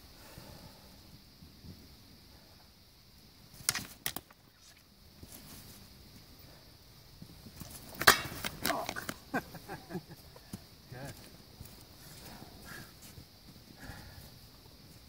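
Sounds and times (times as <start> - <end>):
practice swords clacking: 8.0 - 9.2.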